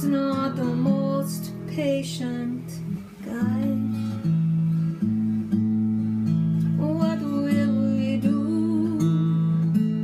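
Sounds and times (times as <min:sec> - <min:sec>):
woman singing: 0:00.0 - 0:04.4, 0:06.6 - 0:10.0
acoustic guitar strumming: 0:00.0 - 0:10.0.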